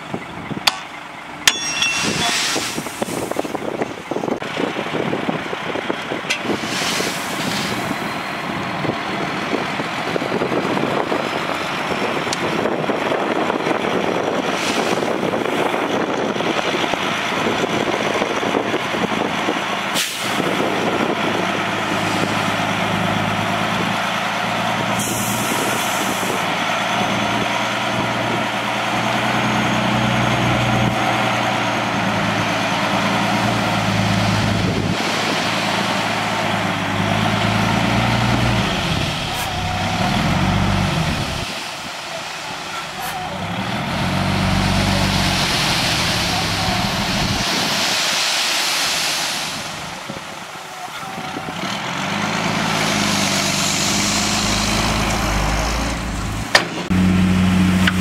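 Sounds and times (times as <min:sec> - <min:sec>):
sand sliding out: 0:02.1 - 0:03.4, 0:06.6 - 0:08.0, 0:44.2 - 0:50.1
truck diesel engine revving: 0:02.4 - 0:48.0, 0:48.7 - 0:58.0
broad hiss: 0:45.3 - 0:50.1.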